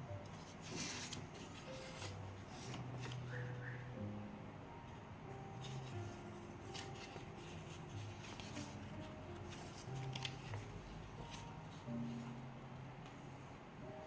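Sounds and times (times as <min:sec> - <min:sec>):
soft background music: 0:00.0 - 0:14.0
paper pages rustling: 0:00.3 - 0:03.5, 0:05.6 - 0:12.4.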